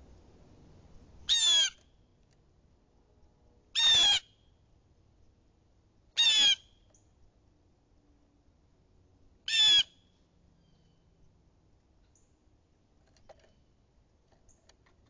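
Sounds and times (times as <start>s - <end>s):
blue jay squawking: 1.3s - 1.8s, 3.8s - 4.4s, 6.2s - 6.7s, 9.5s - 10.0s.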